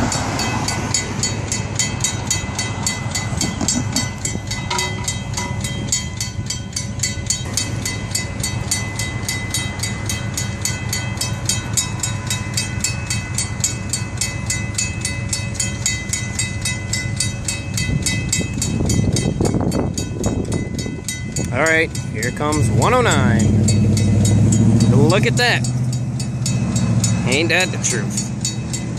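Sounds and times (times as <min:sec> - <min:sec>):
railroad crossing bell ringing: 0:00.0 - 0:28.9
low rumble: 0:17.7 - 0:28.9.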